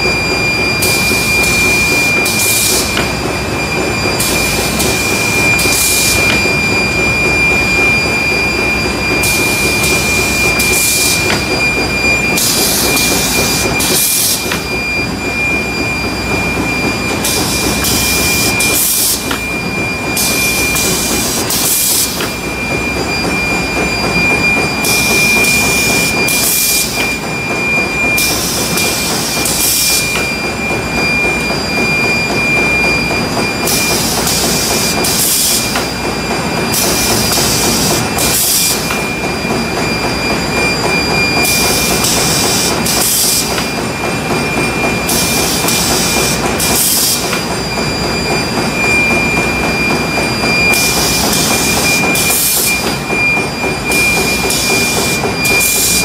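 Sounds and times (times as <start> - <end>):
high machine whine: 0.0 - 56.0
machinery clattering: 0.0 - 56.0.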